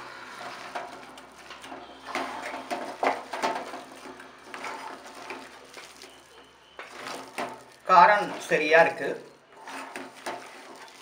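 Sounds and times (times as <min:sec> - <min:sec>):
hand squishing wet batter: 0:03.0 - 0:11.0.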